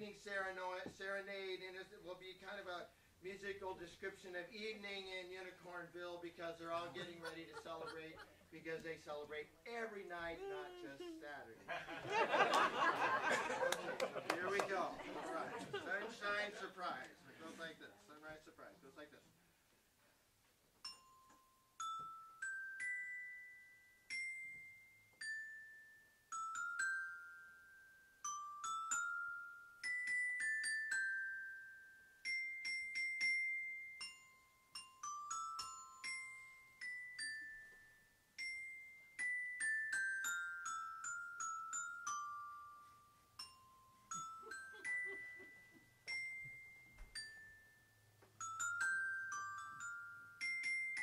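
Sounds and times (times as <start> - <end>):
glockenspiel melody: 20.8 - 51.0.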